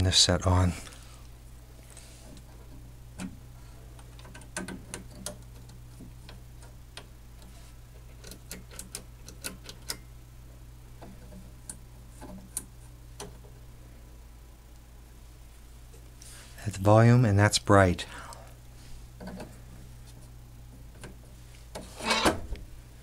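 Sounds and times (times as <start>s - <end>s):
steady low hum: 0.0s - 23.0s
small clicks and taps on television knobs: 11.0s - 13.6s.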